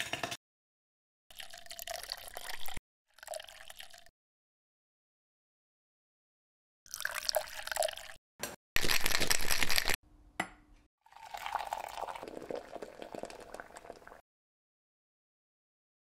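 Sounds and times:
liquid pouring into glass: 1.3s - 4.1s, 6.9s - 8.2s, 11.1s - 14.2s
liquid pouring into shaker: 1.3s - 4.1s, 6.9s - 8.2s, 8.8s - 10.0s, 11.1s - 14.2s.

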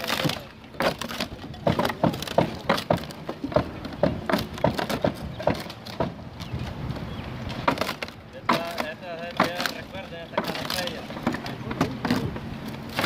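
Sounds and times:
wood shingles cracking and splintering: 0.0s - 6.2s, 7.6s - 13.0s.

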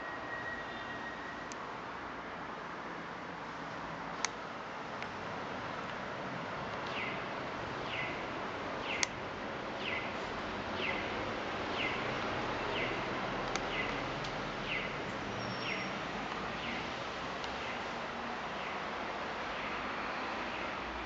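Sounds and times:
crossing signal chirp: 0.0s - 1.6s
street noise hiss: 0.0s - 21.0s.

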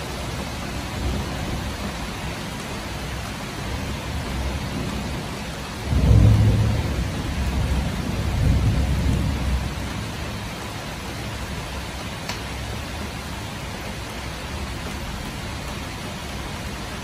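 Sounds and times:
heavy rain hissing: 0.0s - 17.0s
thunder rumbling: 3.8s - 10.5s.

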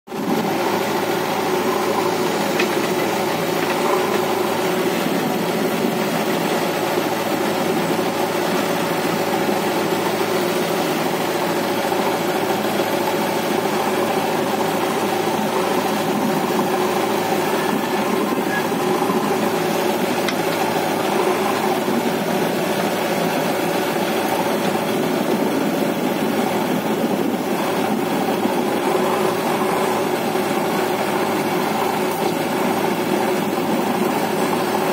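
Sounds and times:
diesel engines idling: 0.1s - 34.9s.

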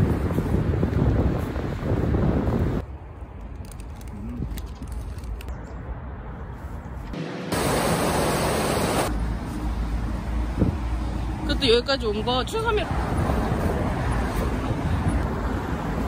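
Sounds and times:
wind on microphone: 0.0s - 2.8s, 13.0s - 16.0s.

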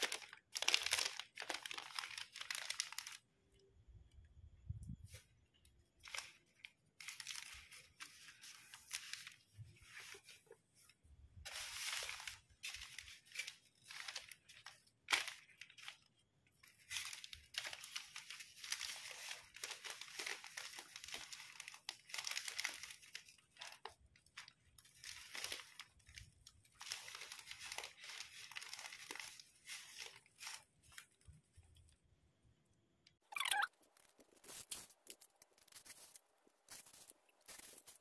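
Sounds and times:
plastic film crinkling: 0.0s - 3.3s, 4.9s - 32.0s, 33.6s - 38.0s
sharp plastic crackle: 0.0s - 3.3s, 33.4s - 38.0s.

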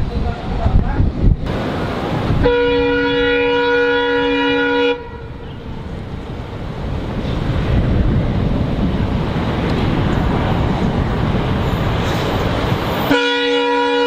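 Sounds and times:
low rumbling noise: 0.0s - 13.1s
locomotive horn blast: 2.4s - 5.9s, 13.1s - 14.0s.

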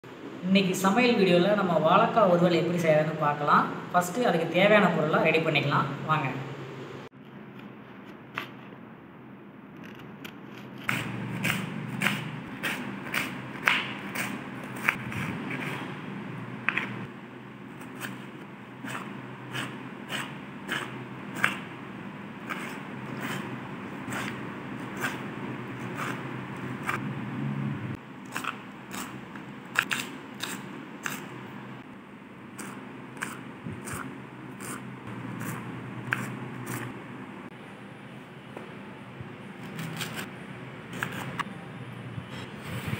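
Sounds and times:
knife chopping on wooden board: 10.8s - 15.9s, 18.8s - 21.7s.

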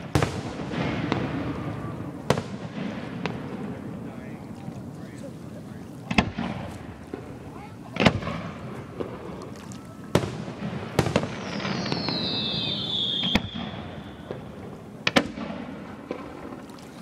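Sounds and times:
fireworks bangs: 0.0s - 5.2s, 6.0s - 9.4s, 10.0s - 16.6s
descending firework whistle: 11.0s - 14.7s.

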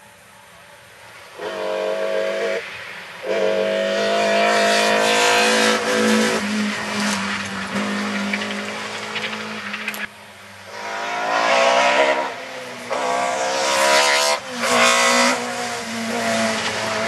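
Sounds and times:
rally car engine at full throttle: 4.1s - 17.0s.

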